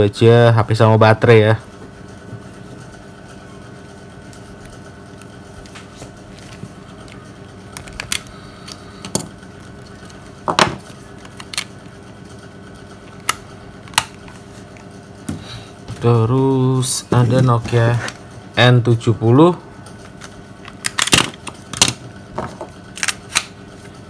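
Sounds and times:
steady hum: 0.0s - 24.0s.

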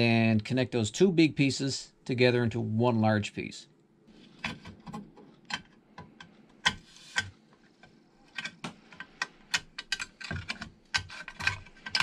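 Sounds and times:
metal bars clicking and tapping: 8.3s - 12.0s.

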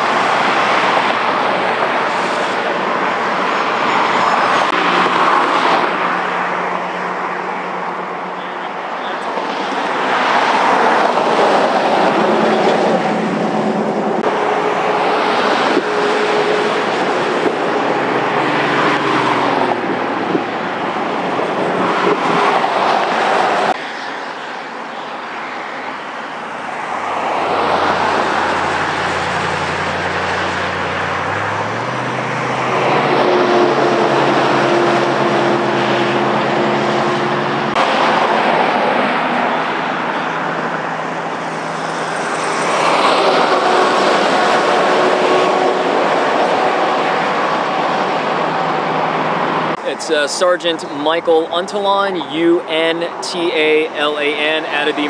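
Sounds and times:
freeway traffic roar: 0.0s - 55.0s
passing vehicle engines: 0.0s - 55.0s.

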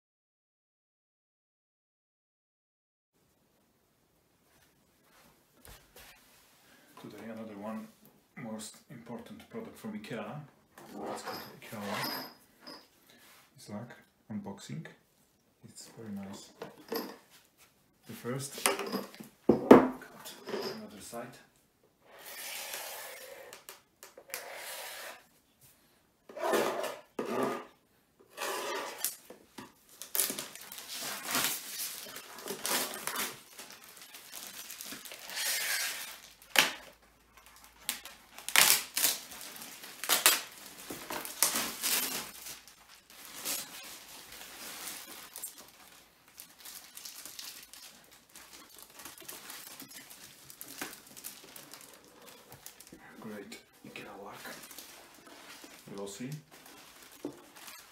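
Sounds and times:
plastic wrap crinkling: 29.0s - 57.9s.

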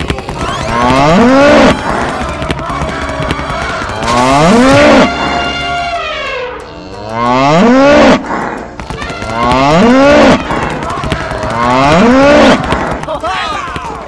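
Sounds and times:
cow mooing: 3.6s - 8.6s.

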